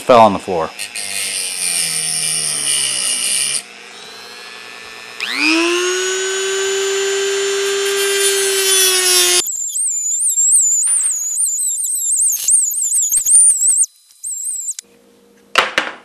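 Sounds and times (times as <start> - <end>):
rotary tool grinding whine: 0.6 - 14.8.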